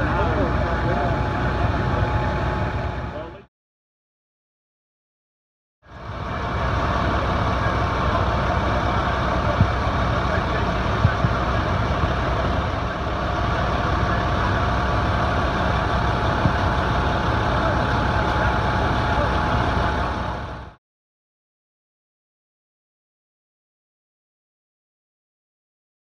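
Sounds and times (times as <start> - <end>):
high whine: 0.0 - 3.5, 5.9 - 20.8
truck engine running: 0.0 - 3.5, 5.8 - 20.8.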